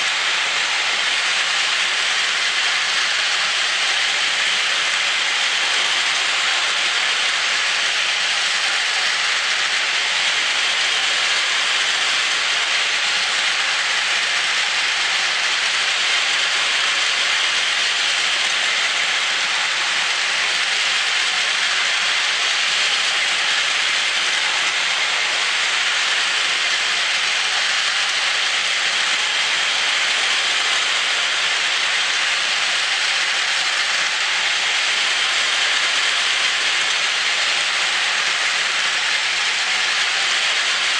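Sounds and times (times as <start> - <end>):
toy trains whirring on plastic track: 0.0 - 40.9.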